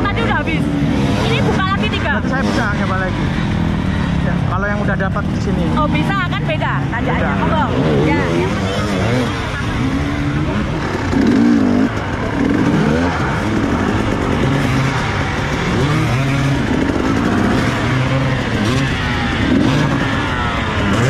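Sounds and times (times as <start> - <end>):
dirt bike engines revving: 0.0 - 21.0.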